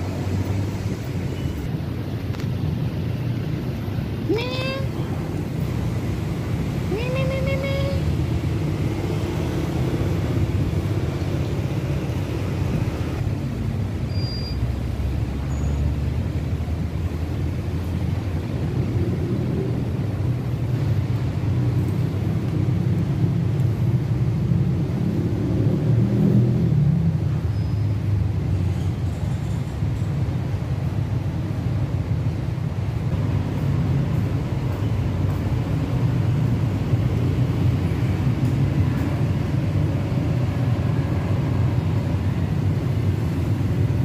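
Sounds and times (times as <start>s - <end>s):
road traffic rumble: 0.0s - 44.0s.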